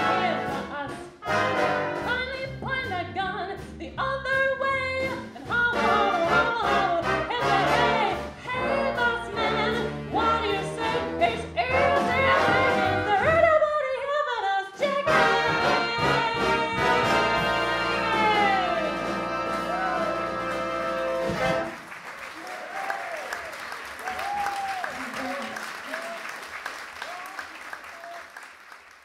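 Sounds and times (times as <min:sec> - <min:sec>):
big band playing swing: 0:00.0 - 0:13.7, 0:14.7 - 0:24.1
woman singing: 0:00.0 - 0:19.6.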